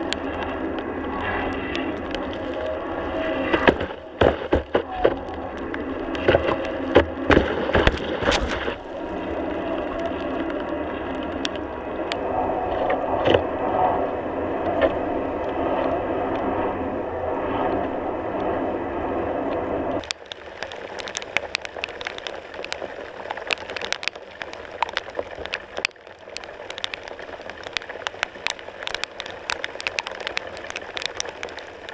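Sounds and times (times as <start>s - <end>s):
muffled water rushing past board: 0.0s - 31.9s
hiss with crackles and ticks: 20.0s - 31.9s.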